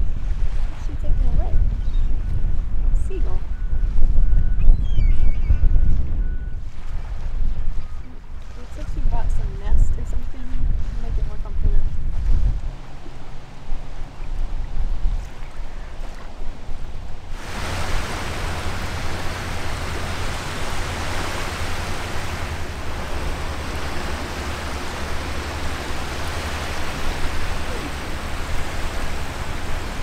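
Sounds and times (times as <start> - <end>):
choppy water: 0.0 - 30.0
wind rumbling on microphone: 0.0 - 30.0
low rumble: 9.2 - 30.0.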